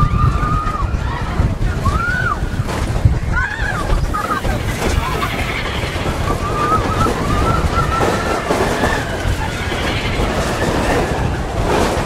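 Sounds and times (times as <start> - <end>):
roller coaster rumbling on track: 0.0 - 12.0
thin wavering squeal: 3.4 - 11.4.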